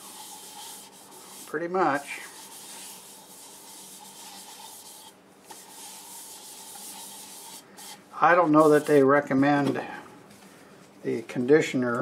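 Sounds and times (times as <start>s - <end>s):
paper towel rubbing wood: 0.0s - 9.1s.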